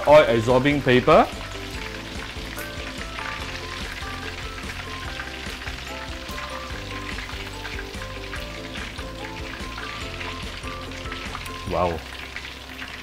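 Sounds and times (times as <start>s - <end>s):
chicken deep-frying in oil: 0.0s - 13.0s.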